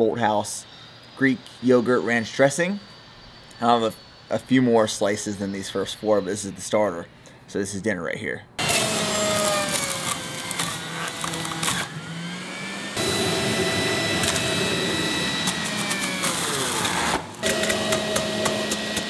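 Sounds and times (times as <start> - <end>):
juicer motor whining: 8.6 - 19.0.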